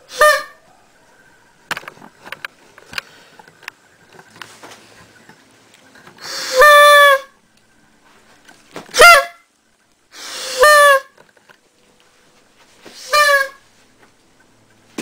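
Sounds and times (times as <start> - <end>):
party horn honking: 0.1 - 0.6, 6.5 - 7.3, 8.9 - 9.4, 10.5 - 11.2, 13.0 - 13.6.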